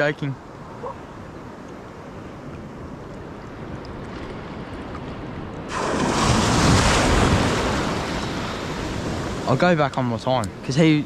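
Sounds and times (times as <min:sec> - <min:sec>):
shallow sea water washing: 0:02.6 - 0:09.9
small wave breaking: 0:05.7 - 0:09.5.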